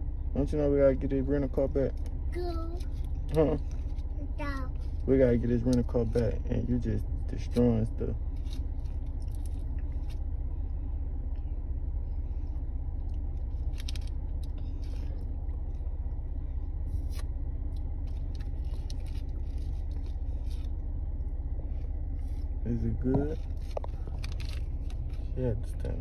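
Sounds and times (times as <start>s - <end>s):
car interior rumble: 0.0s - 26.0s
paper candy packet crinkling: 18.0s - 20.7s, 23.4s - 25.3s.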